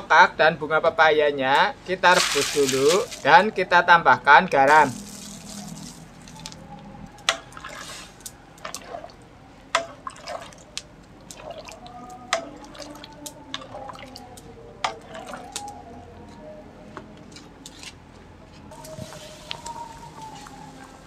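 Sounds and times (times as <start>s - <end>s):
water sloshing in metal pot: 2.1s - 3.4s, 7.2s - 15.7s
short gurgling blips: 4.7s - 7.9s.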